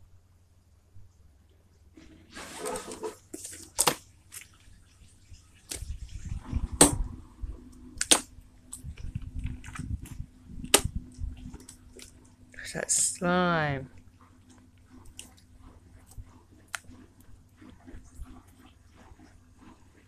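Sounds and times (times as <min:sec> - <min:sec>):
slime squelching: 0:02.0 - 0:20.0
low rumble: 0:05.9 - 0:12.5.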